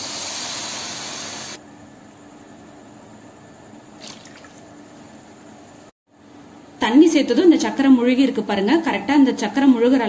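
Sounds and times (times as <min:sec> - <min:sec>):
water splashing onto sugar: 0:04.0 - 0:04.7.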